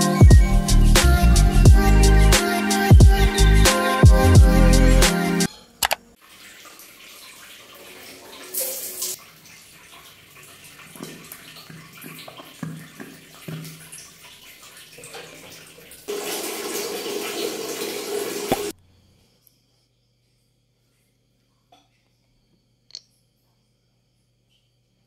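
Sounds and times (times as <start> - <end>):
water spraying: 6.2 - 18.7
water running: 6.2 - 18.8
soap dispenser pumping: 15.2 - 18.7.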